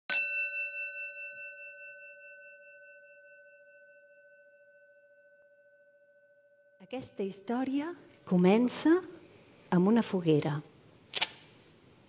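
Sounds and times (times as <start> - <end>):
small bell ringing: 0.0 - 7.6.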